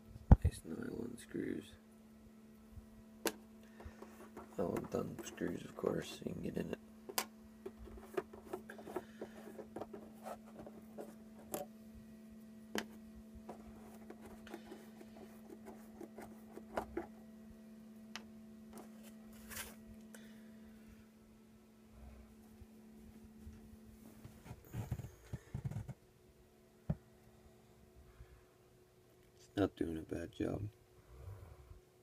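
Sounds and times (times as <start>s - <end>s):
steady low hum: 0.0s - 32.0s
light clicks taps and scrapes: 3.7s - 6.3s, 7.1s - 11.7s.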